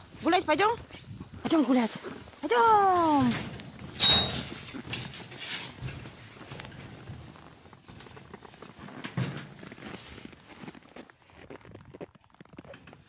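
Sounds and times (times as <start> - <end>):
dog paws crunching on snow: 5.9 - 13.0.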